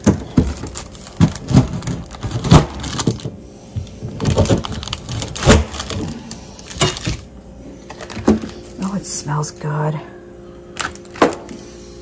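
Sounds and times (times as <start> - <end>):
crumbly crunching: 0.0 - 3.3, 4.1 - 7.3.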